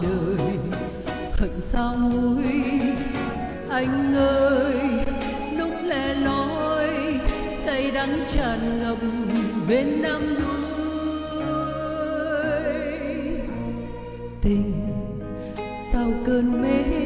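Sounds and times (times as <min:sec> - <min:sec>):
recorded music with beat: 0:00.0 - 0:12.6
woman singing into microphone: 0:00.0 - 0:17.0.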